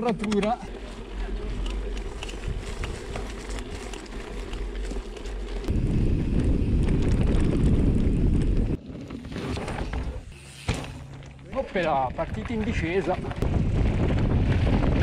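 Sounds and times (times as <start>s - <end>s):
bike tyres rattling on stony trail: 0.0s - 15.0s
wind buffeting microphone: 1.0s - 8.8s, 12.2s - 15.0s.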